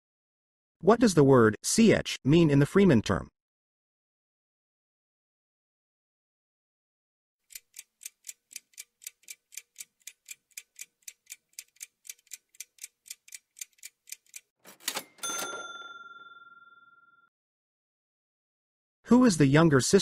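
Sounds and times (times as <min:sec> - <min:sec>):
clock ticking: 0:07.5 - 0:15.3.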